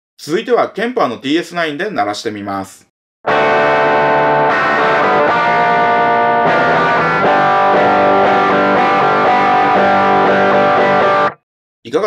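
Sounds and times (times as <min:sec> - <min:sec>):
overdriven electric guitar chords: 0:03.2 - 0:11.4.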